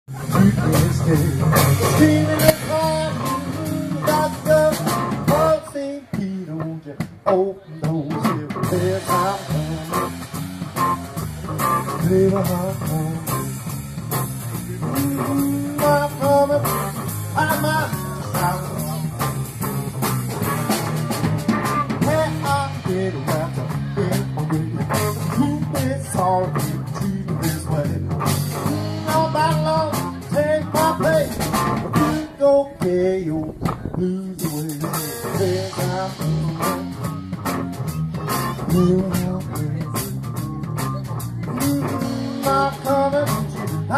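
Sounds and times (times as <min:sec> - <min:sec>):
drum kit: 0:00.0 - 0:43.9
man singing: 0:00.1 - 0:19.7, 0:20.6 - 0:43.9
electric guitars: 0:00.1 - 0:43.9.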